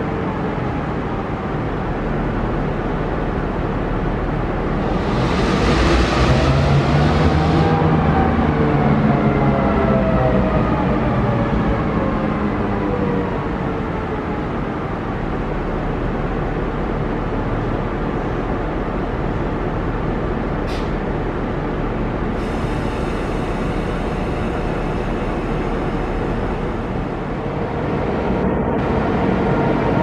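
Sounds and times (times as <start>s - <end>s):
diesel locomotive idling: 15.0s - 30.0s.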